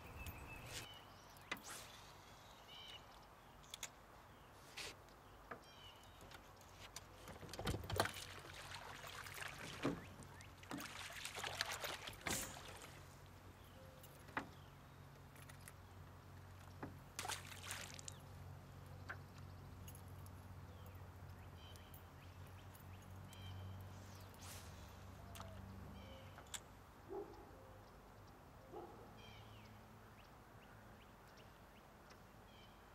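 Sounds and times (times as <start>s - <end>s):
water splashing beside boat: 7.3s - 13.3s, 17.0s - 18.4s.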